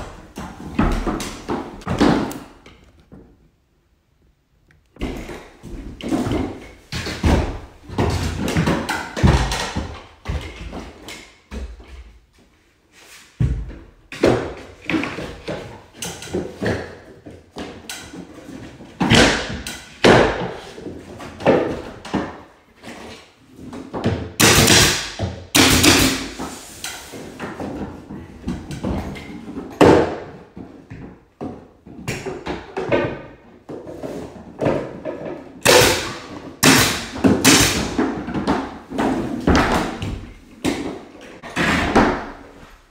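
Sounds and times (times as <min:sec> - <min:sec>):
wooden molding knocking and thudding: 0:00.0 - 0:03.4.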